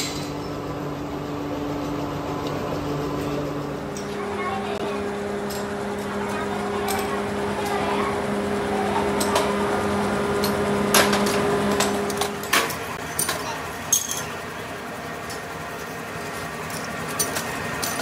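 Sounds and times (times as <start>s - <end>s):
low machine hum: 0.0s - 18.0s
metal castings clinking: 10.4s - 14.4s, 16.6s - 18.0s.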